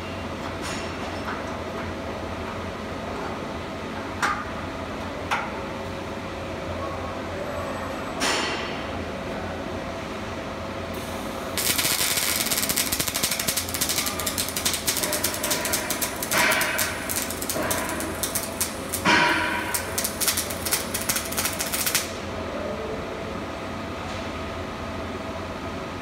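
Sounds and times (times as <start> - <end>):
steady machine hum: 8.9 - 26.0
welding arc crackling: 11.0 - 22.2.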